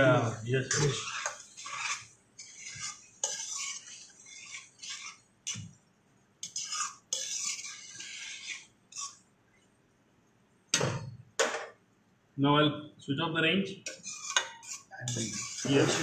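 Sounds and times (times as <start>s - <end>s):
metal spoon scraping a pan: 0.0s - 5.8s, 6.4s - 9.3s, 13.8s - 16.0s.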